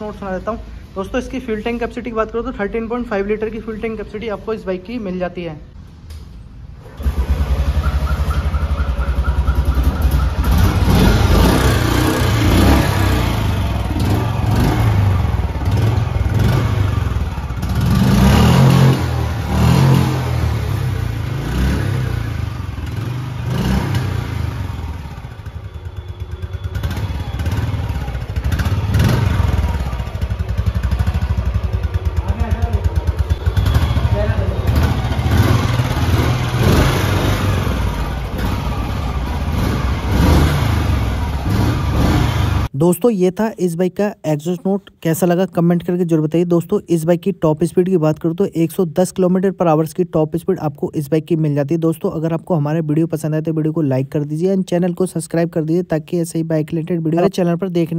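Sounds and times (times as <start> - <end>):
motorcycle engine idling and revving: 6.8 - 42.8.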